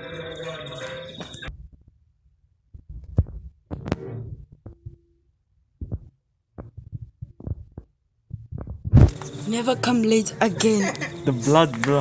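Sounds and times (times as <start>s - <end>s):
muffled thumps and knocks: 2.7s - 5.0s, 5.8s - 9.2s.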